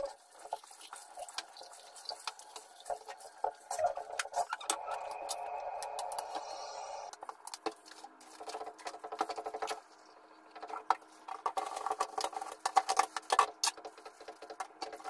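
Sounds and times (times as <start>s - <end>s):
sponge scrubbing a dish: 0.0s - 4.7s, 7.8s - 15.0s.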